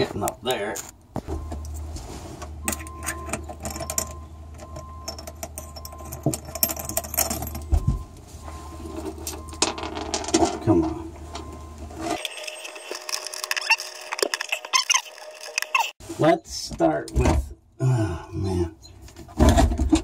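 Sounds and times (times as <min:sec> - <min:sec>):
washers and nuts clinking: 0:02.6 - 0:15.9.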